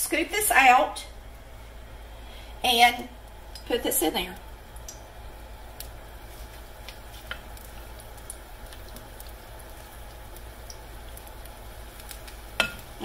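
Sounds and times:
batter sizzling in hot oil: 0.6 - 13.0.

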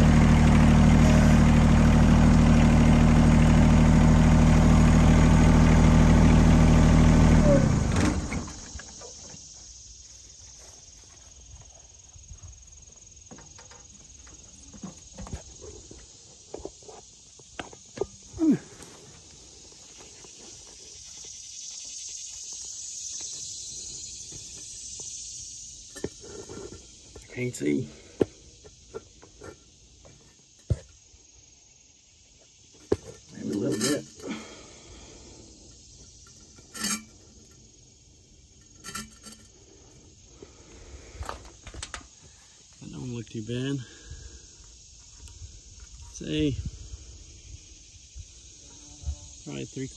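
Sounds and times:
high-pitched insect drone: 6.4 - 49.9
sharp clinks on clay pipe: 36.2 - 37.6, 38.6 - 39.6.

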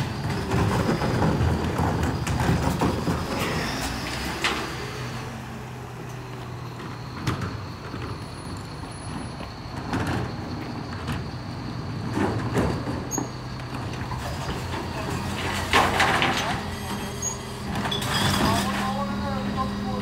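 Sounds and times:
diesel engine idling: 0.0 - 12.2, 18.6 - 20.0
wheelie bins clattering: 0.0 - 20.0.

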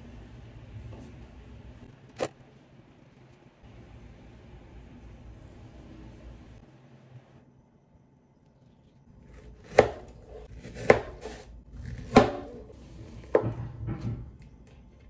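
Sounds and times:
knife chopping on cutting board: 9.6 - 12.6.

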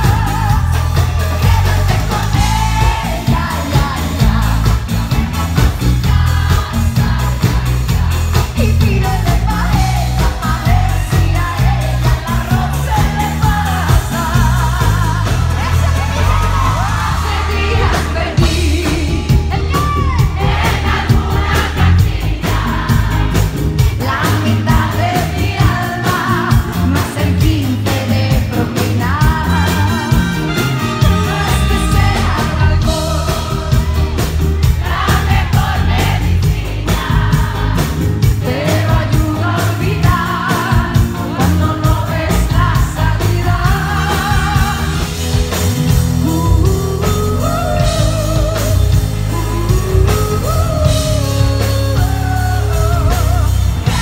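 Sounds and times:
live band music: 0.0 - 54.0
woman singing into a microphone: 6.3 - 20.4, 23.9 - 30.2, 38.4 - 45.2, 46.2 - 54.0.

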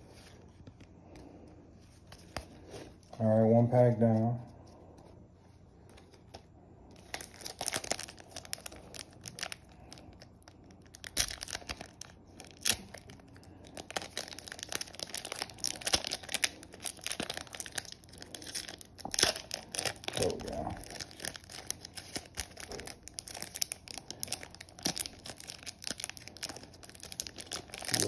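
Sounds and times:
foil wrapper crinkling: 5.9 - 28.0
foil pack tearing open: 7.0 - 28.0.

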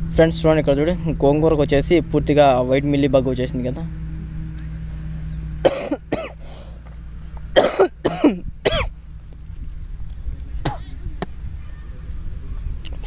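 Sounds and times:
man coughing: 5.6 - 6.4, 7.6 - 8.9, 10.6 - 11.0
man clearing his throat: 5.7 - 6.4, 7.6 - 8.9, 10.6 - 11.0.

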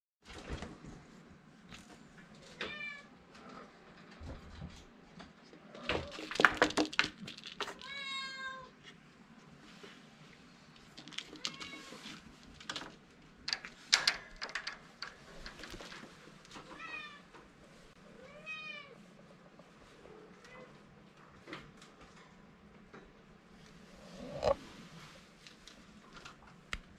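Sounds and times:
knocks and rattles: 5.9 - 7.9, 12.6 - 16.8.

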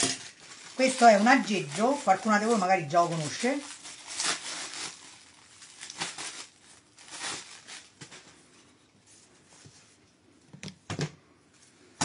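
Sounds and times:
plastic wrapping crinkling: 0.0 - 8.6.

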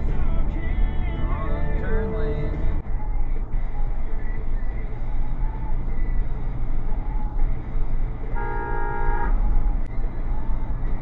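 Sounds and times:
road and engine rumble: 0.0 - 11.0
car horn honk: 8.3 - 9.4.

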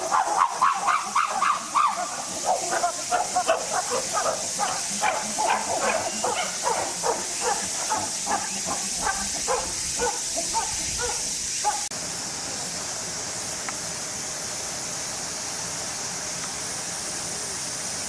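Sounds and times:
chimpanzee calls: 0.0 - 11.9
steady high hiss: 0.0 - 18.0.

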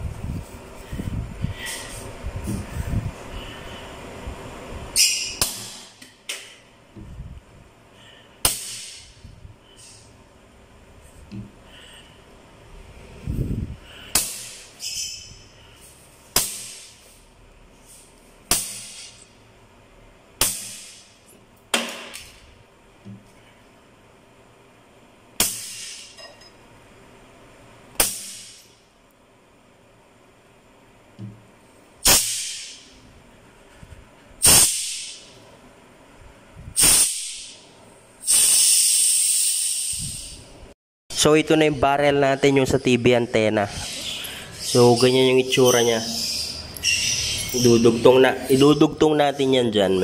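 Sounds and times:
compressed air pops with hiss: 5.4 - 7.3, 8.4 - 10.0, 14.1 - 14.7, 18.4 - 19.2, 20.4 - 22.3, 25.4 - 26.1, 28.0 - 28.7, 32.0 - 32.9, 34.4 - 35.3, 36.7 - 37.6, 38.2 - 40.4
hiss of escaping air: 34.4 - 35.3, 36.8 - 37.6, 38.2 - 40.5.

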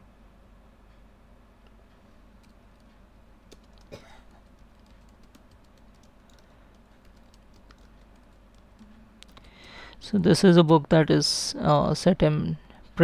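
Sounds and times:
typing on computer keyboard: 3.5 - 9.8.

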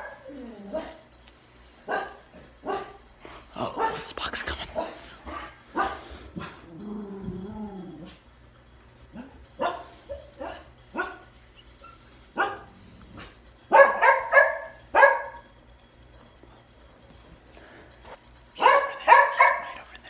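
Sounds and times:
dog barking: 1.8 - 3.0, 3.8 - 4.0, 4.8 - 6.5, 9.1 - 11.3, 12.4 - 12.7, 13.7 - 15.4, 18.6 - 19.8.

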